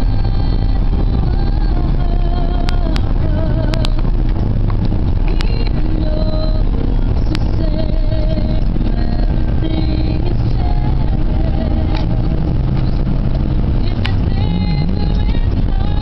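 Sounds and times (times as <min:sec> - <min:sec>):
engine and tyres rumbling: 0:00.0 - 0:16.0.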